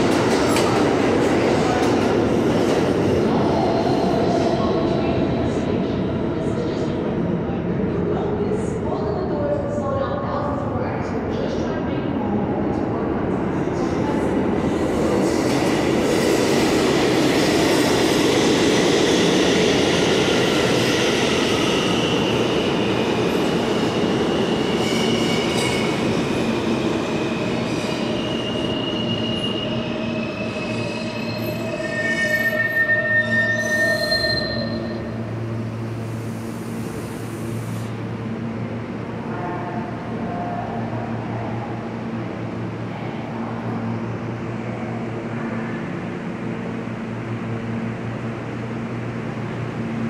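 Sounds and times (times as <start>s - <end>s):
subway train running in tunnel: 0.0s - 50.0s
steel wheels squealing: 28.3s - 35.1s.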